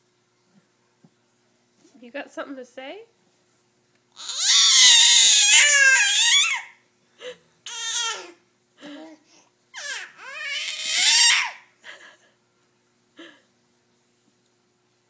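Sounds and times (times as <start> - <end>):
baby squealing and babbling: 4.2 - 6.7, 7.7 - 8.4, 9.8 - 11.6.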